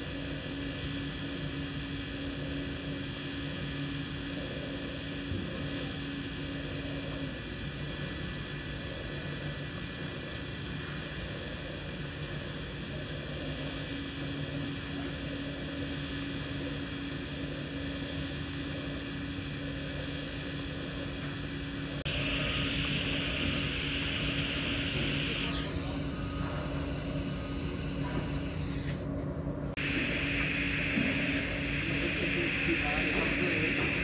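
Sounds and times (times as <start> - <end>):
welding arc hissing: 13.0 - 29.0, 29.8 - 34.0.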